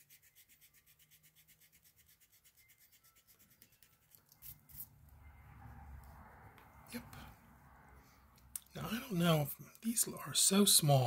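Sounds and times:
pencil scribbling on paper: 0.0s - 4.9s.

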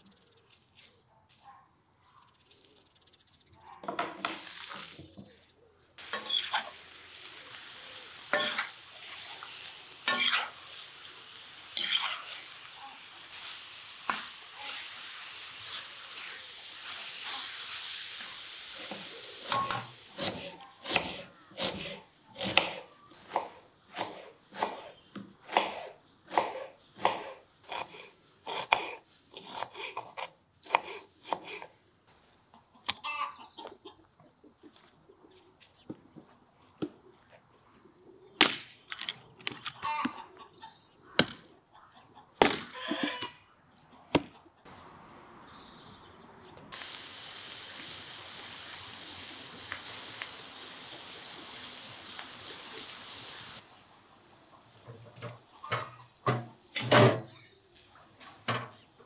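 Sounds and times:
beef sizzling in a pan: 6.0s - 20.6s, 46.8s - 53.6s
hatchet splitting firewood: 25.5s - 31.7s
knife chopping on wooden board: 25.5s - 31.7s.

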